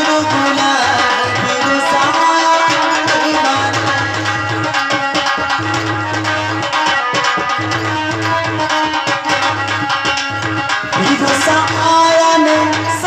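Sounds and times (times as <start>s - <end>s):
harmonium notes: 0.0s - 13.0s.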